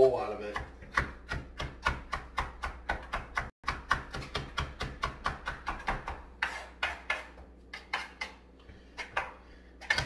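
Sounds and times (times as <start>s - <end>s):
knife chopping on cutting board: 0.5s - 8.4s.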